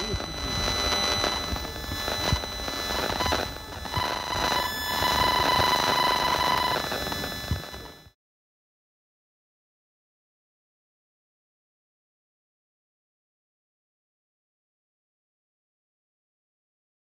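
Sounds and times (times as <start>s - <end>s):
detector crackling and buzzing: 0.0s - 8.1s.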